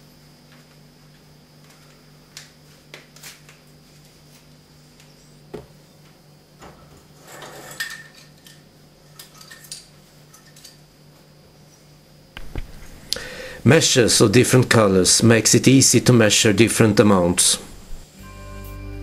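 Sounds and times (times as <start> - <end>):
steady low hum: 0.0 - 19.0
utensils clattering rattle: 7.2 - 10.8.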